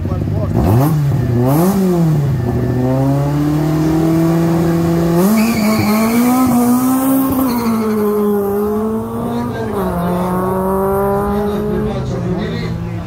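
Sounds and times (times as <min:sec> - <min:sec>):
race car engine revving: 0:00.0 - 0:13.0
tyre squeal: 0:05.2 - 0:08.7.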